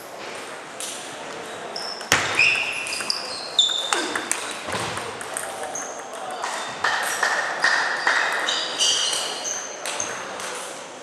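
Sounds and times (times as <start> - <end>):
ping pong ball clicks: 2.9 - 8.5.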